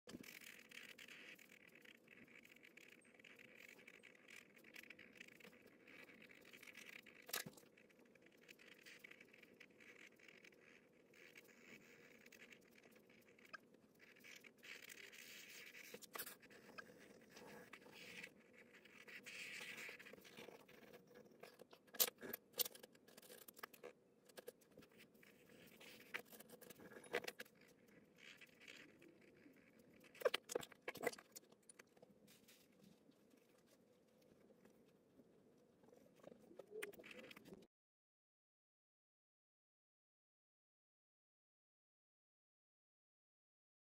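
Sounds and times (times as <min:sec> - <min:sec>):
pen scratching on paper: 0:08.4 - 0:32.6.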